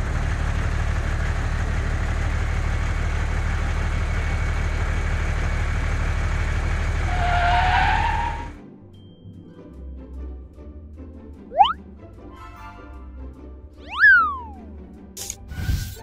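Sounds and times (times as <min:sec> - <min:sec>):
tractor engine idling: 0:00.0 - 0:06.9.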